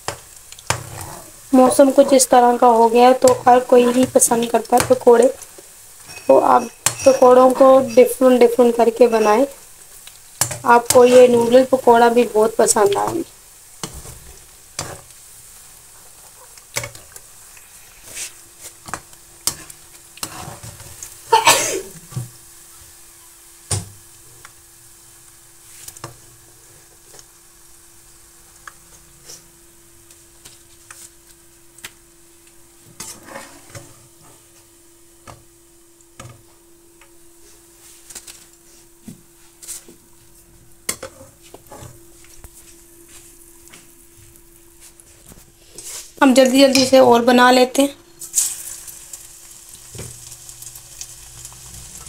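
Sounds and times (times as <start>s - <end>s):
deep-frying sizzle: 0.0s - 52.0s
metal spoon scraping pan: 33.0s - 33.9s.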